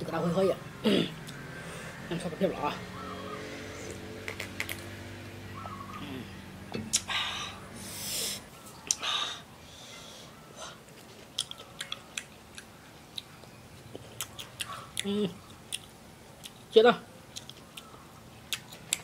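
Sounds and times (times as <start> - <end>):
breathy sniffs or slurps: 7.2 - 8.5
crunchy chewing: 10.9 - 19.0.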